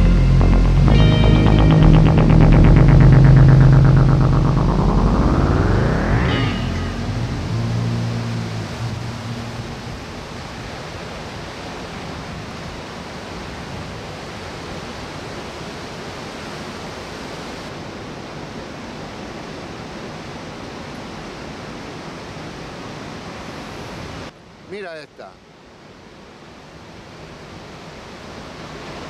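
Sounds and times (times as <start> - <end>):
ocean surf breaking: 4.0 - 12.4.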